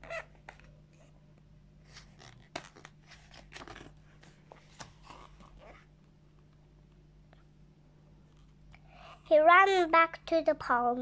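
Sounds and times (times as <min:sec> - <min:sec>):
paper pages rustling and turning: 0:01.8 - 0:05.9.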